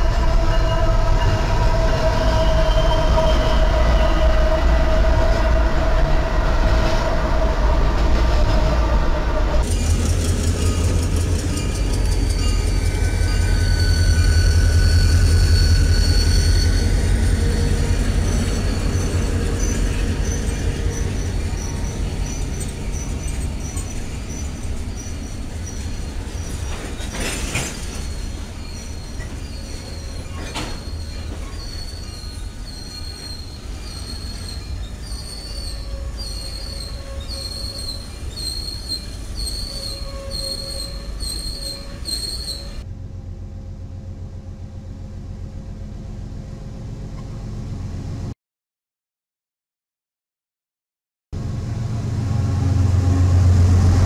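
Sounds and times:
high wheel squeal: 0:00.0 - 0:42.8
diesel locomotive rumble: 0:00.0 - 0:48.3, 0:51.4 - 0:54.0
train clanks: 0:09.6 - 0:42.8.

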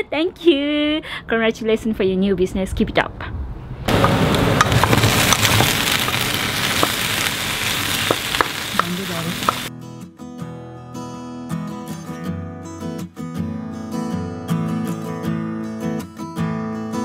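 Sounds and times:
vegetables sizzling in oil: 0:03.9 - 0:09.7
acoustic guitar music: 0:03.9 - 0:17.0.

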